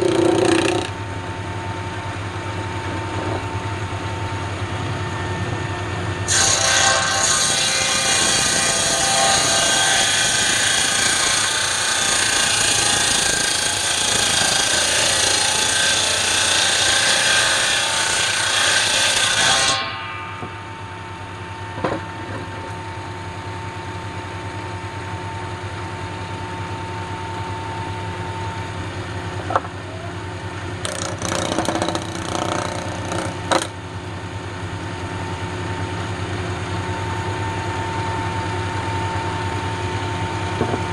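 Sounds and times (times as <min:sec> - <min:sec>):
circular saw cutting log: 0:00.0 - 0:01.1, 0:06.2 - 0:20.1, 0:30.8 - 0:33.8
knocks: 0:21.8 - 0:22.4.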